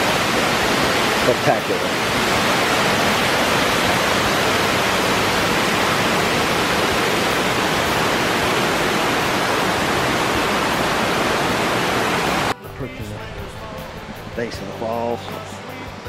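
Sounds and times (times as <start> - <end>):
stream cascading over rocks: 0.0 - 12.6.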